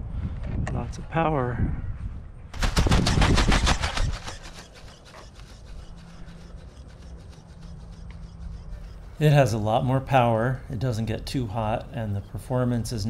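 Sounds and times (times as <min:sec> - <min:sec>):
steady low hum: 0:01.6 - 0:13.0
ornithopter wings snapping: 0:02.6 - 0:05.8.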